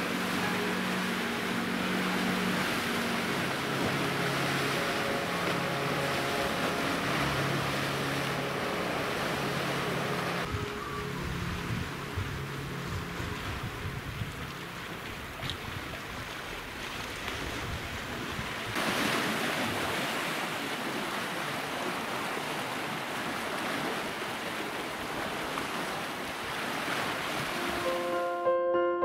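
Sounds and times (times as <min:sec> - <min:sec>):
piano music: 0:00.0 - 0:15.0, 0:27.5 - 0:29.0
sea water washing: 0:00.0 - 0:28.2
wind on microphone: 0:10.2 - 0:18.9.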